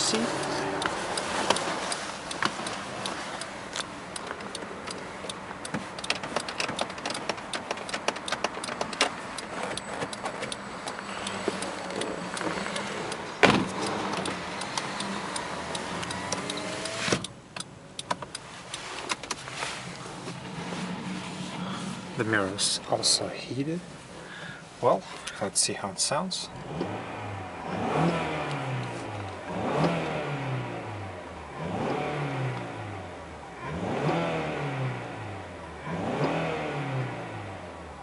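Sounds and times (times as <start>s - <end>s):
small clicks and knocks in car cabin: 0.8s - 19.5s.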